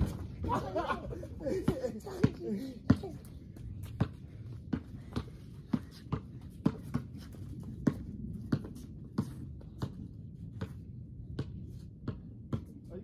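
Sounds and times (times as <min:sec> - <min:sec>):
basketball bouncing: 0:01.6 - 0:03.2, 0:03.8 - 0:12.8.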